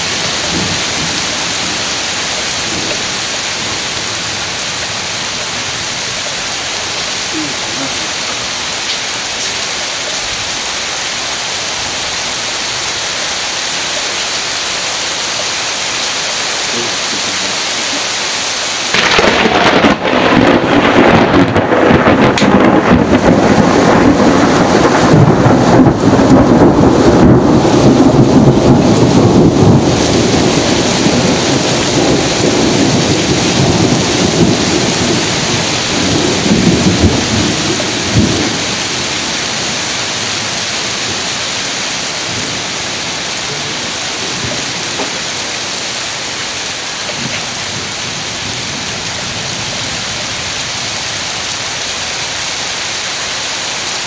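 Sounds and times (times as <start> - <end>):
torrential rain hissing: 0.0 - 54.0
thunder crack and rumble: 18.9 - 38.8.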